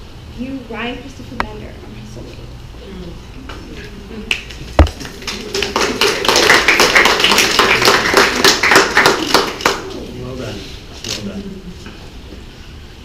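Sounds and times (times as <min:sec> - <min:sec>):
small group applauding: 0:04.2 - 0:10.1.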